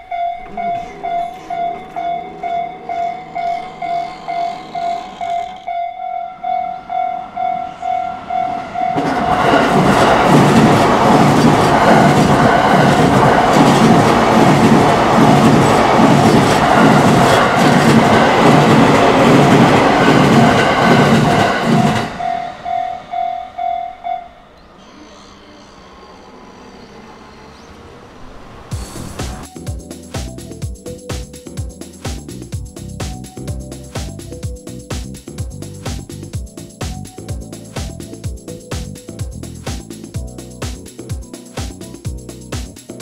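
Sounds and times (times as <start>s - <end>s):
level crossing bell ringing: 0.0s - 9.9s, 21.7s - 24.6s
train passing with wheel clatter: 0.0s - 43.0s
faint street noise: 22.0s - 29.6s.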